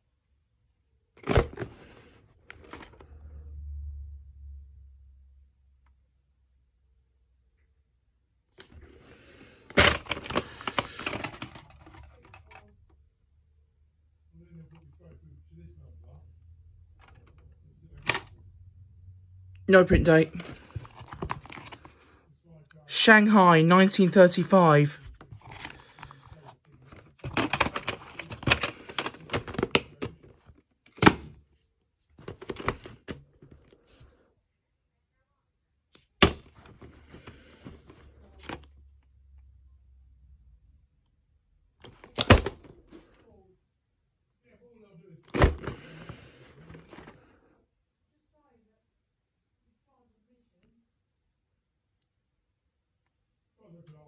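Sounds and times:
plastic case clicking and crackling: 0:02.5 - 0:03.0, 0:09.7 - 0:12.7, 0:20.3 - 0:21.9, 0:25.1 - 0:31.4, 0:32.2 - 0:33.7, 0:41.8 - 0:42.8.

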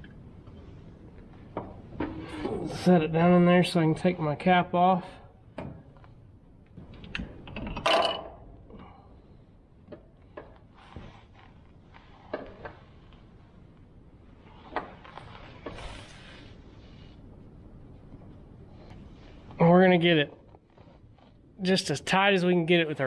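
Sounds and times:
rustling and scraping: 0:10.2 - 0:17.5, 0:20.3 - 0:21.6.

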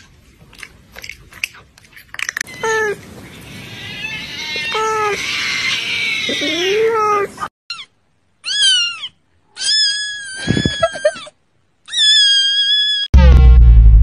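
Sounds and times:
kitten meowing: 0:03.7 - 0:11.0, 0:11.9 - 0:13.1.

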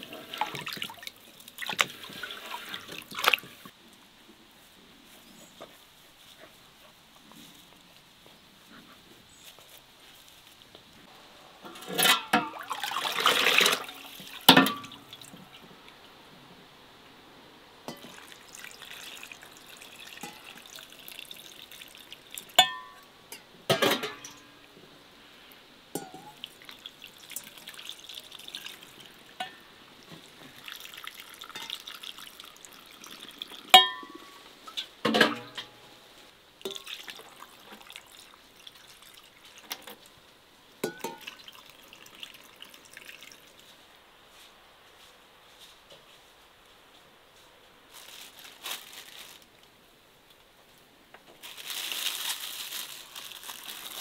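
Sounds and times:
liquid pouring and splashing: 0:00.0 - 0:03.7, 0:12.3 - 0:15.5, 0:17.9 - 0:22.6, 0:26.0 - 0:29.5, 0:30.2 - 0:33.8, 0:36.6 - 0:40.1, 0:40.8 - 0:43.7.

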